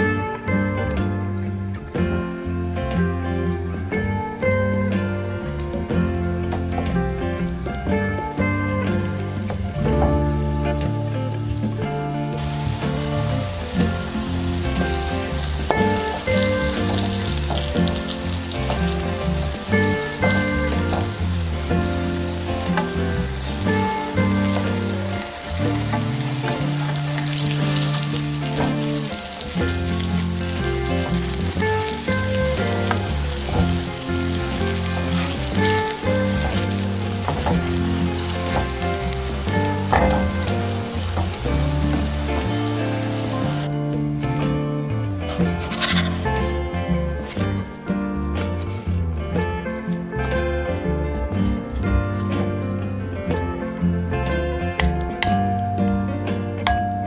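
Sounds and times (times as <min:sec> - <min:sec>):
background music: 0:00.0 - 0:57.0
vegetables sizzling in hot oil: 0:12.3 - 0:46.8
wooden spatula knocking on pan: 0:12.4 - 0:42.7.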